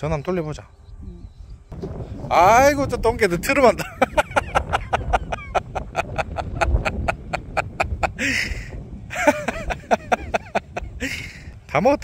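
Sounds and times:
breathy laugh: 3.8 - 11.4.

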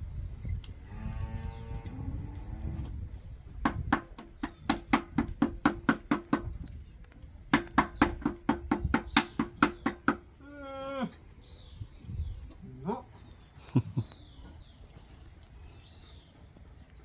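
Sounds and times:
tapping on metal: 3.6 - 6.6, 7.5 - 10.3.

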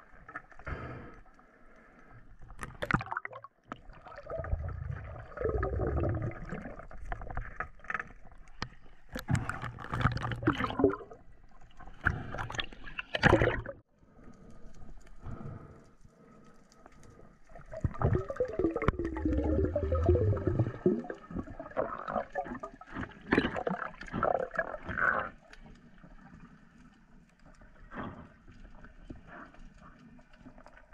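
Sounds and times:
underwater gurgling and bubbling: 2.8 - 8.6, 9.2 - 13.8, 17.5 - 26.4.

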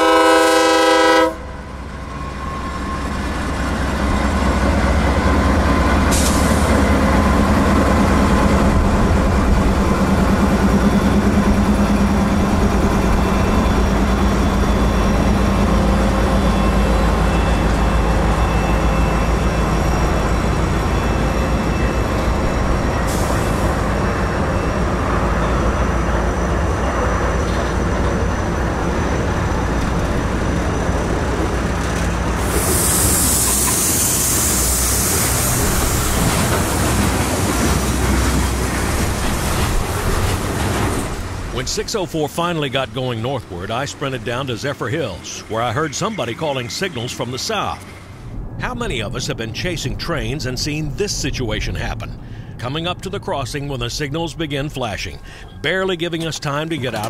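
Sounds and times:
locomotive horn chord: 0.0 - 1.7
locomotive engine rumble: 0.0 - 57.0.

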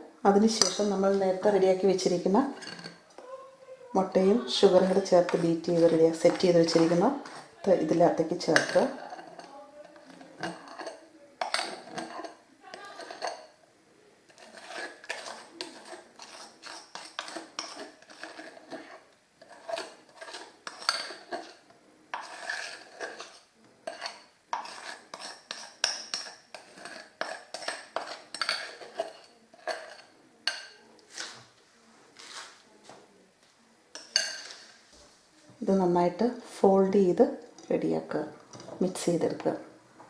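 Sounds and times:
metal spoon scraping glass bowl: 0.4 - 3.0, 4.0 - 13.6, 14.3 - 31.3.

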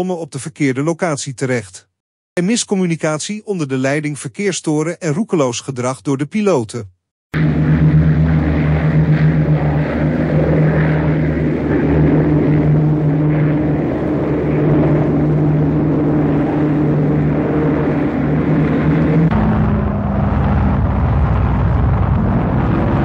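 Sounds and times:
propeller aircraft engine drone: 7.4 - 23.0.

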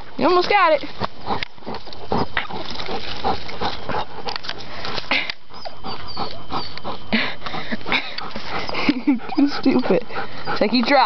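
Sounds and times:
dog whining: 5.5 - 7.4, 8.6 - 11.0.

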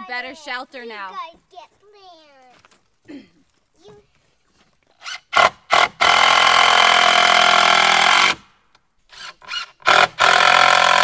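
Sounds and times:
cordless drill driving screw: 5.0 - 8.4, 9.1 - 11.0.

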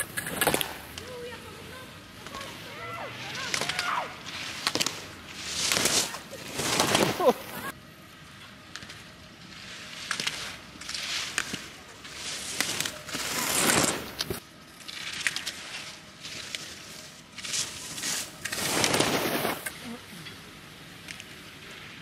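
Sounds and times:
skis knocking gate poles: 0.0 - 7.7
skis scraping on snow: 0.0 - 7.8, 8.7 - 22.0.

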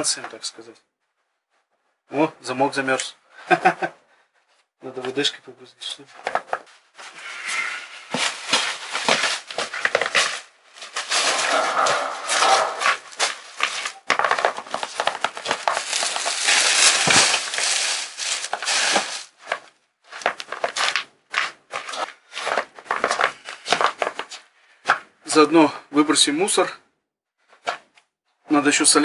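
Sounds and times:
plastic bag rustling: 6.7 - 21.0.

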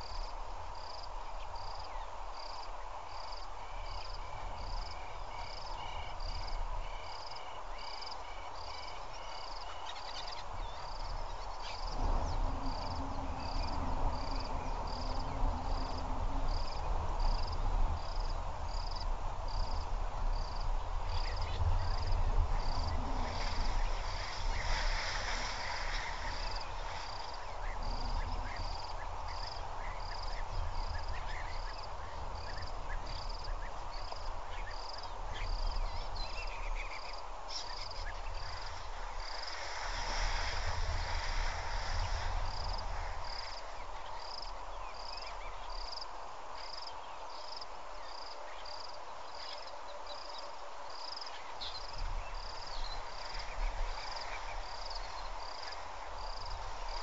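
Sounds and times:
steady hiss: 0.0 - 50.3, 50.9 - 57.0
insects chirping: 0.0 - 57.0
low rumble: 11.9 - 18.7.

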